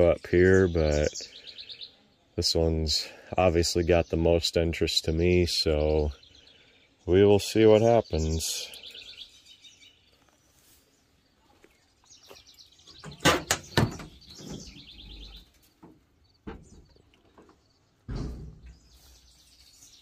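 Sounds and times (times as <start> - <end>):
birds chirping: 0.0 - 20.0
metal hood panel clicks and clanks: 13.0 - 14.6, 18.1 - 18.8
dull thump: 15.8 - 19.0.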